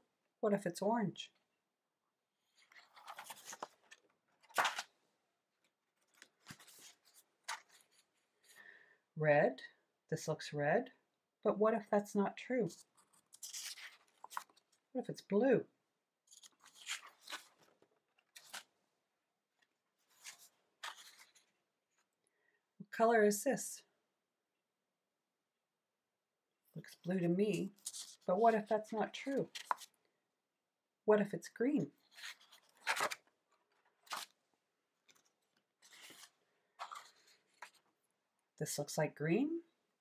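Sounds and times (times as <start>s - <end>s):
paper rustling on a table: 2.6s - 4.9s, 6.0s - 8.2s, 12.8s - 14.8s, 16.3s - 18.7s, 20.0s - 21.6s, 32.1s - 34.4s, 35.1s - 37.9s.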